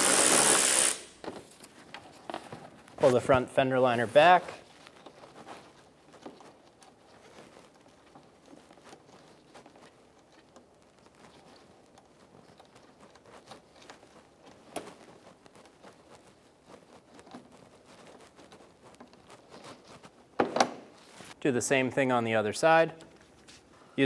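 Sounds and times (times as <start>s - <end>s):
plastic rustling and crinkling: 0.0s - 21.4s, 22.7s - 24.0s.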